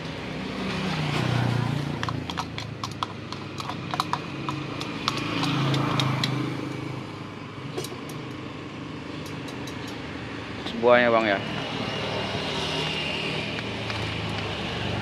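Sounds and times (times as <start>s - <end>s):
vehicle engine passing: 0.2s - 7.4s, 9.4s - 15.0s
ice and utensils clicking on bucket: 1.9s - 6.4s.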